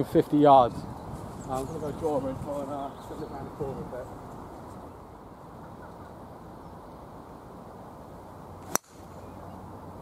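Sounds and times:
wind noise on microphone: 0.0s - 4.9s
golf ball struck off tee: 8.6s - 9.1s.

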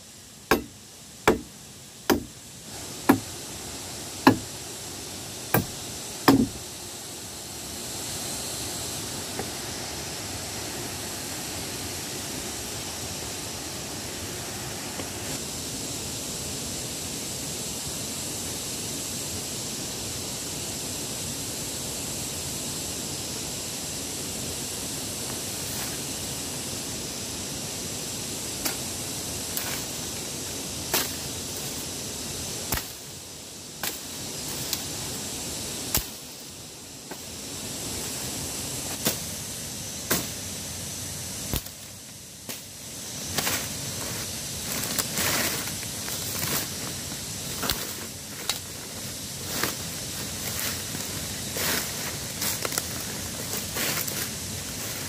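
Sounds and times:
sharp irregular knocks: 0.5s - 1.5s, 2.1s - 2.3s, 4.3s - 4.5s, 6.3s - 6.6s
steady rushing noise: 28.6s - 55.0s.

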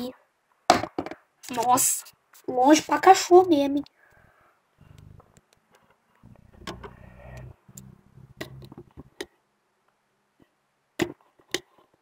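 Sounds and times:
low rubbing rumble: 4.8s - 5.3s, 6.2s - 9.1s.

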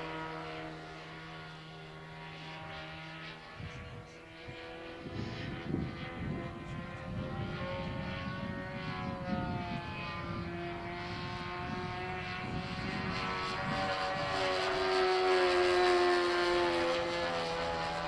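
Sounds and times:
model plane engine droning: 0.0s - 18.0s
wind rumbling on microphone: 3.5s - 14.9s.

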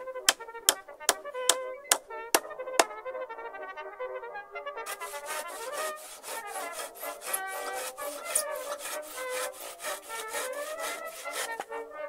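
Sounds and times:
background music: 0.0s - 12.0s
handsaw cutting wood: 0.7s - 2.0s, 4.9s - 11.8s.

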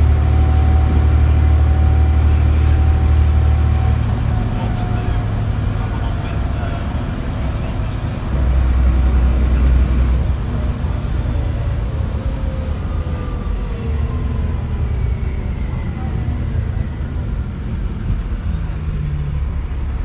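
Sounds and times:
bus engine drone: 0.0s - 20.0s
faint descending whine: 7.4s - 19.8s.

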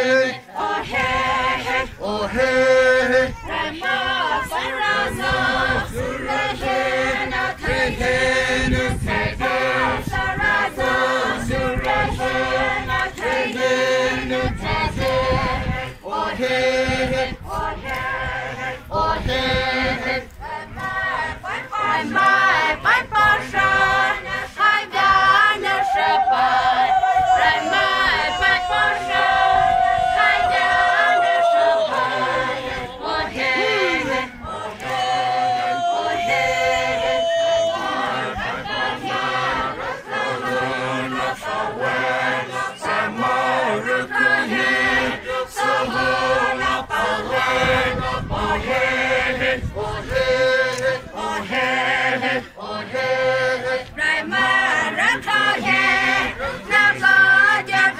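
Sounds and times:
group singing and chanting: 0.0s - 57.9s
long wavering high call: 25.6s - 32.2s, 35.6s - 38.3s.

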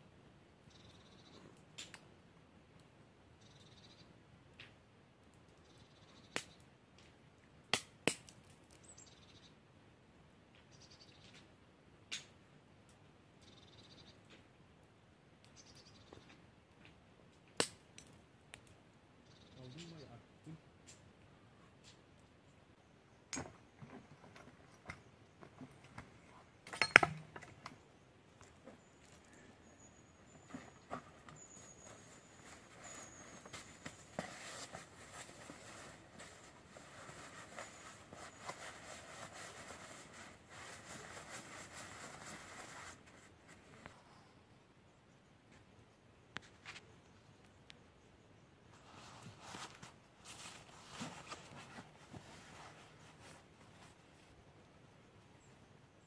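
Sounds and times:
campfire crackling and popping: 1.5s - 3.1s, 4.4s - 9.0s, 14.2s - 19.2s, 20.7s - 37.6s
tools and wood knocking: 26.7s - 27.7s
faint high chirps: 27.9s - 34.2s.

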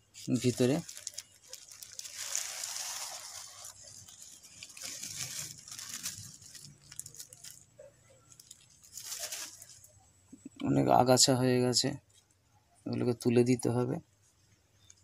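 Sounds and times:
plastic sheet crinkling: 0.1s - 10.0s.

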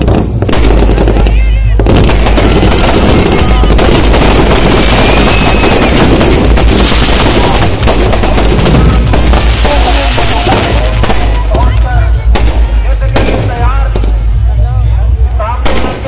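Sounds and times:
fireworks crackling barrage: 0.0s - 16.0s.

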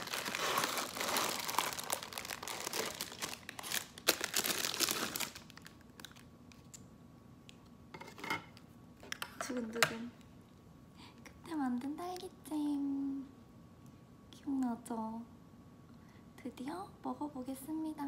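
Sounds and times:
plastic wrapper crinkling: 0.0s - 6.8s.

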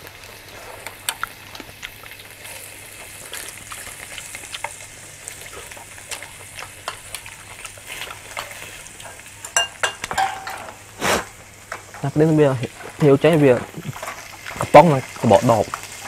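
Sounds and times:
meat sizzling on grill pan: 0.0s - 16.0s
ringing tableware clinks: 9.6s - 10.7s.

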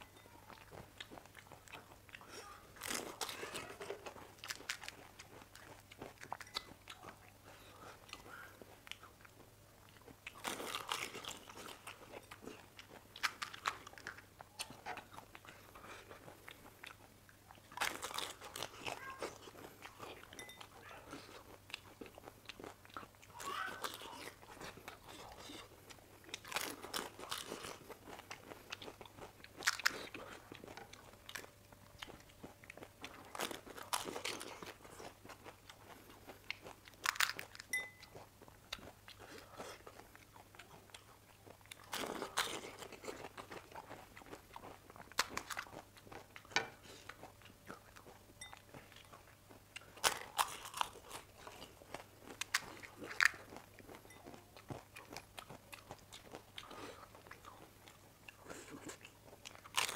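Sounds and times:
chewing: 0.0s - 59.9s
crisp shells cracking: 36.9s - 37.6s.

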